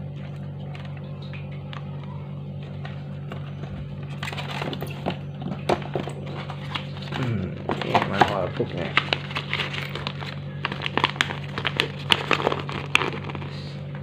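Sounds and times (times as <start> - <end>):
massager motor humming: 0.0 - 14.0
styrofoam packaging crackling: 5.7 - 14.0.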